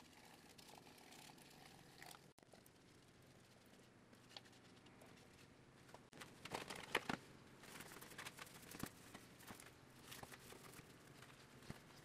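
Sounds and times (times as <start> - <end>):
gloved hands crackling sticky paper: 6.2 - 12.0.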